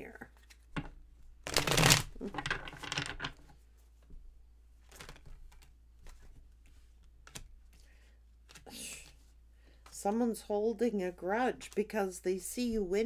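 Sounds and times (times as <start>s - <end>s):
cards shuffling: 0.3s - 3.5s, 4.8s - 9.3s.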